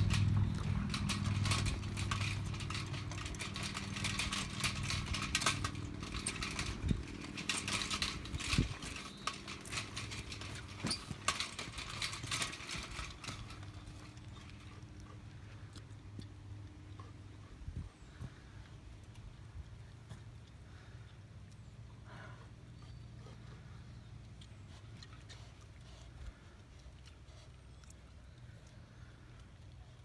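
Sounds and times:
sharp clicks and rattles: 0:00.0 - 0:17.2
low engine hum: 0:00.0 - 0:30.0.

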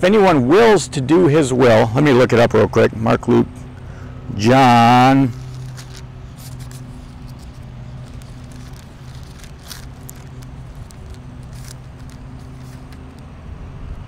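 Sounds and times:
low engine hum: 0:00.0 - 0:14.0
pages rustling: 0:05.2 - 0:13.3.

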